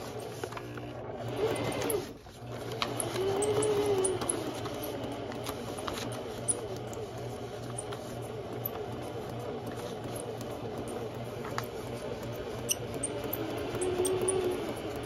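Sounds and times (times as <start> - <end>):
sewing machine motor hum: 0.0 - 15.0
sewing needle ticking: 12.0 - 15.0.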